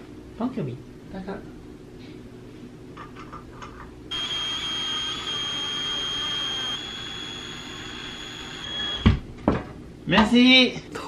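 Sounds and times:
cordless drill whining: 0:04.1 - 0:09.1.

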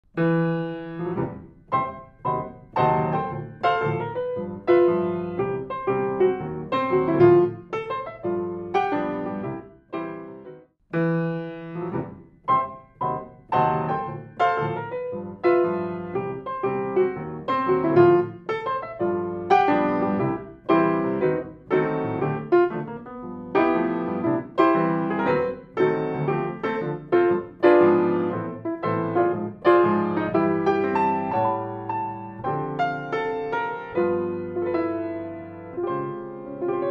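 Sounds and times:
grand piano playing: 0:00.1 - 0:36.9.

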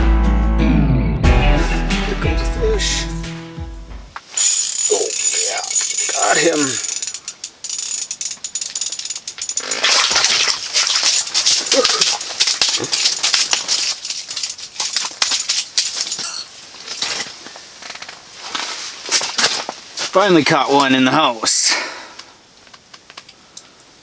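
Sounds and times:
rustling and clattering of fishing: 0:04.2 - 0:20.9.

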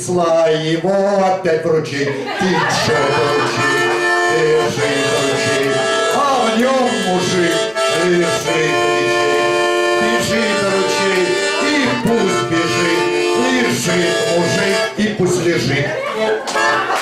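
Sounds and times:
button accordion playing chords: 0:02.4 - 0:17.0.

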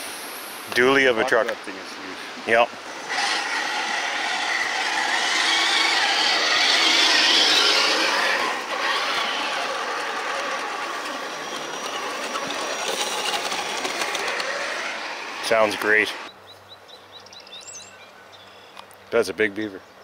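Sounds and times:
toy truck electric motors whining: 0:02.8 - 0:16.3.

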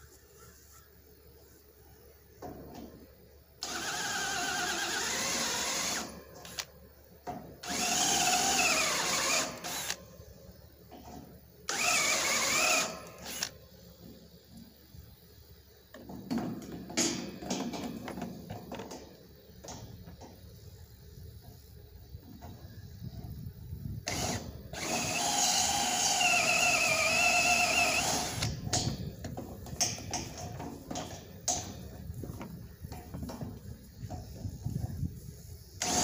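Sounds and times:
cordless drill motor whine: 0:03.6 - 0:06.7, 0:07.6 - 0:10.0, 0:11.7 - 0:13.6, 0:24.0 - 0:28.7, 0:35.8 - 0:36.0.

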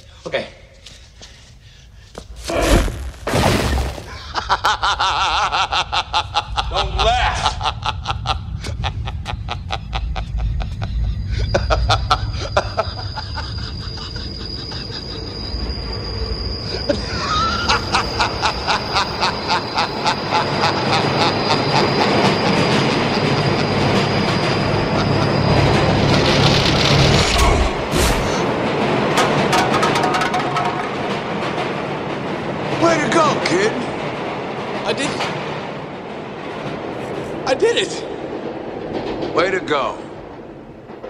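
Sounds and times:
train rumble: 0:04.1 - 0:41.0
high wheel squeal: 0:10.1 - 0:31.5
wheels clacking over rail joints: 0:28.4 - 0:41.0.

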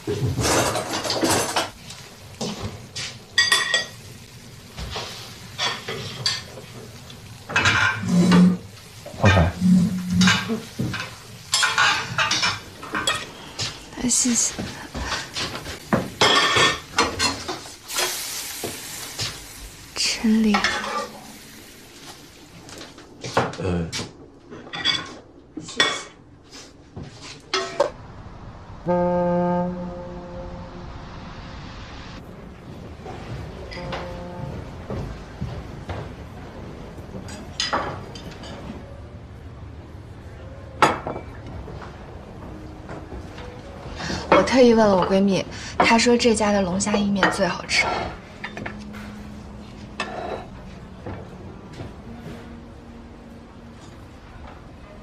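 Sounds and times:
dishes and cutlery clattering: 0:00.1 - 0:01.8, 0:03.4 - 0:04.0, 0:09.2 - 0:13.8, 0:15.0 - 0:17.6, 0:24.6 - 0:26.2, 0:37.2 - 0:38.8, 0:46.9 - 0:51.9
ship's horn blast: 0:28.6 - 0:35.4.

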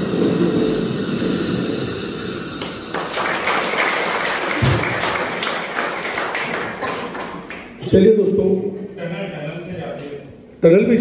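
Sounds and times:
audience applauding: 0:02.6 - 0:07.9.

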